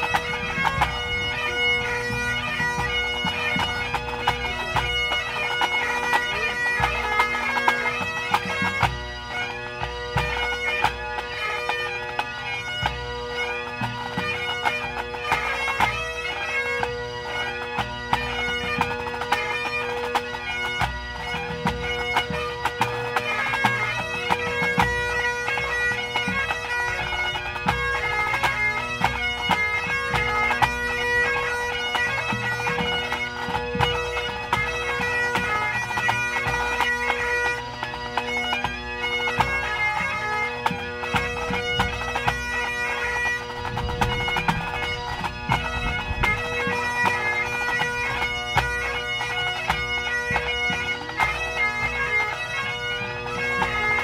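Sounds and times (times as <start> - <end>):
snare tenor and bass drums: 0.0 - 9.0, 43.6 - 48.8
bagpipes playing: 0.0 - 54.0.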